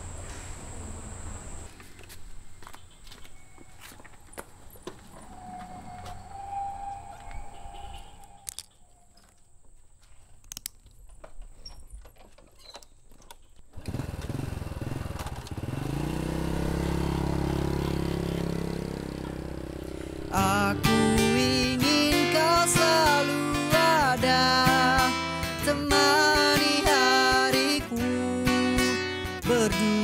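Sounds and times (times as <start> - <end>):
small motorcycle engine: 13.7 - 22.1
acoustic guitar music: 16.4 - 30.0.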